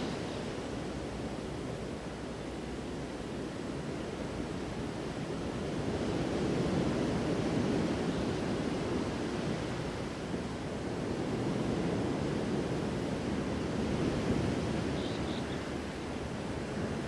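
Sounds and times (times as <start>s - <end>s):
ocean surf rushing: 0.0s - 2.2s.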